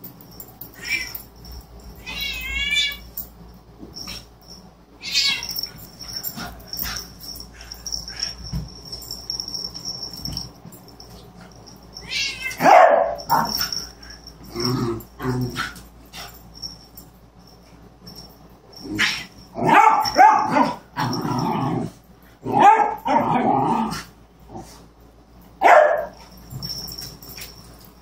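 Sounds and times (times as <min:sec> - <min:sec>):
animal cries: 0:00.8 - 0:01.2, 0:05.0 - 0:05.7, 0:12.0 - 0:13.5
dog barking: 0:12.6 - 0:13.5, 0:19.6 - 0:20.8, 0:22.5 - 0:23.2, 0:25.6 - 0:26.2
animal growls: 0:14.4 - 0:15.8, 0:21.0 - 0:24.7.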